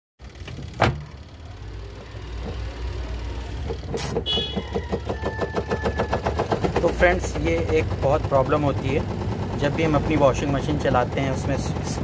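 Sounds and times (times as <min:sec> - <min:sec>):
washing machine spin tub humming: 0:00.2 - 0:12.0
rapid knocking rattle: 0:02.0 - 0:12.0.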